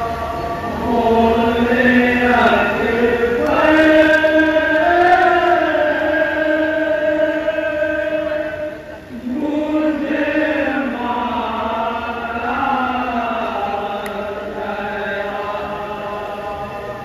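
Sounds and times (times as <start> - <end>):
men chanting a lament: 0.0 - 17.0.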